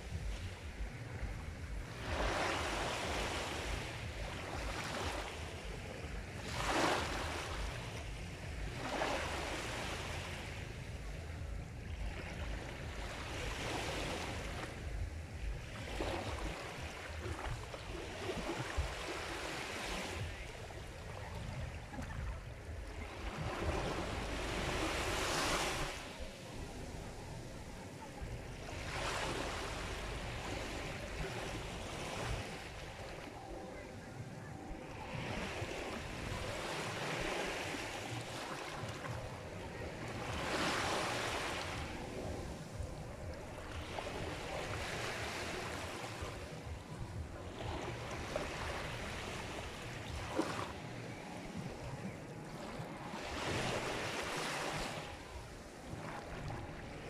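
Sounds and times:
waves breaking on shore: 0:00.0 - 0:57.0.

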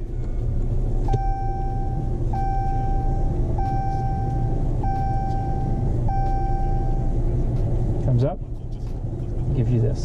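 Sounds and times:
car warning chime dinging: 0:01.0 - 0:07.2.

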